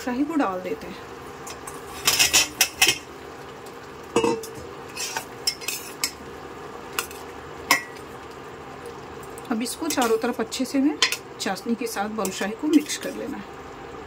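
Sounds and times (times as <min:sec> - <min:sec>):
spoon clinking and scraping pan: 0:01.5 - 0:03.1, 0:04.2 - 0:06.2, 0:11.0 - 0:11.2.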